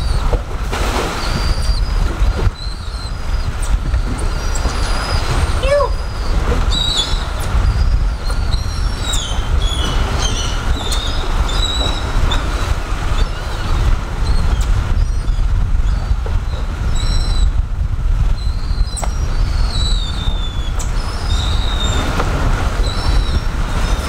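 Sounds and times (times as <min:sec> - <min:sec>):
wind rumble on microphone: 0:00.0 - 0:24.0
high chirping bird calls: 0:02.6 - 0:12.5.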